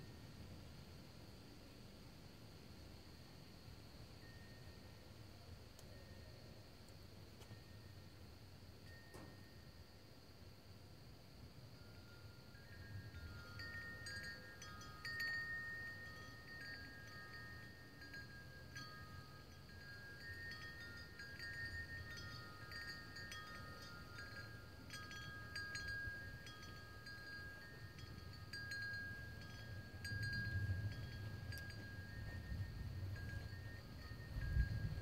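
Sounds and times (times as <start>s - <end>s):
wind chimes ringing: 8.8s - 9.8s, 11.8s - 35.0s.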